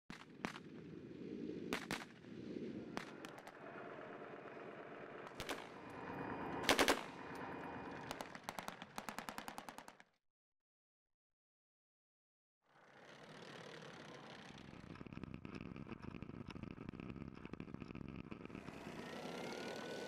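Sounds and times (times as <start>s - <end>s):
steady rumble: 0.8s - 8.4s
machine-gun bursts: 5.2s - 5.8s, 6.6s - 7.2s, 8.0s - 10.0s.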